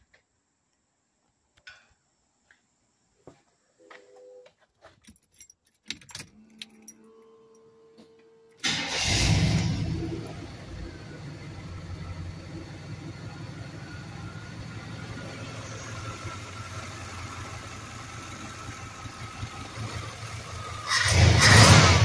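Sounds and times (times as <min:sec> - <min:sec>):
engine revving: 0:08.6 - 0:17.6, 0:18.8 - 0:22.0
truck engine idling: 0:08.6 - 0:21.7.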